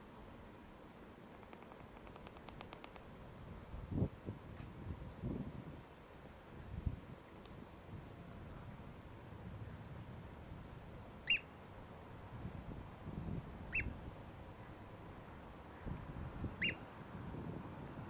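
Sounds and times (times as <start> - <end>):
bird piping calls: 11.2 - 11.5, 13.7 - 14.0, 16.6 - 16.8.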